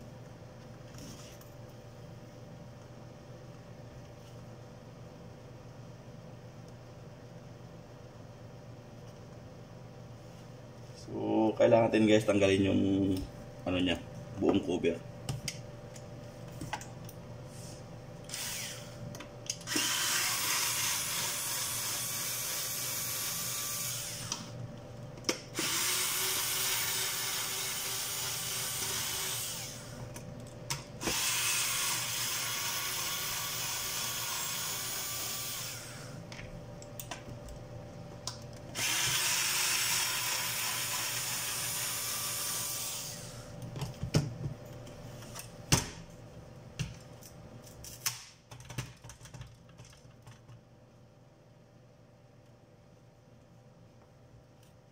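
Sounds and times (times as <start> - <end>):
cordless screwdriver running: 19.7 - 24.3, 25.6 - 29.8, 38.8 - 43.2.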